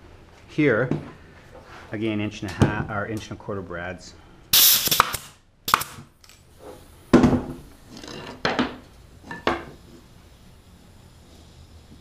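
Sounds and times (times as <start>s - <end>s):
nail gun shots: 4.6s - 6.1s.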